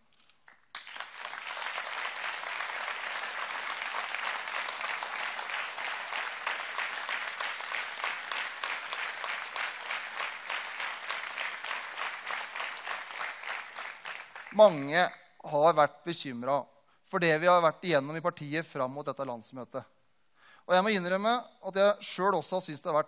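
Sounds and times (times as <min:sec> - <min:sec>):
audience applauding: 0:00.4 - 0:14.9.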